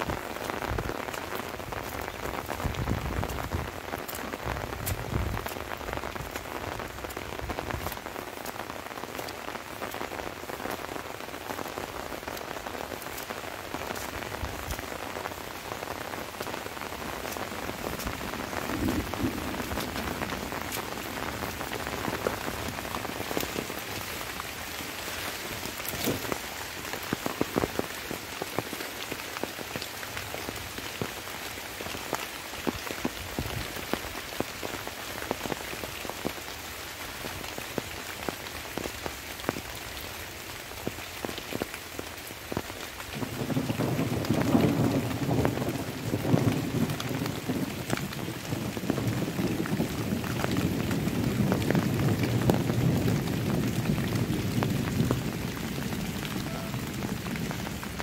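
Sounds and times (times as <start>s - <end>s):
light rain falling: 0.0s - 58.0s
raindrops ticking: 0.0s - 58.0s
low rumble of thunder: 17.0s - 24.4s, 43.2s - 58.0s.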